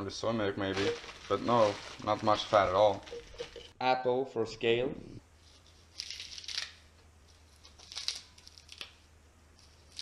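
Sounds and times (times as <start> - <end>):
leaves crinkling and rustling: 0.6 - 3.5.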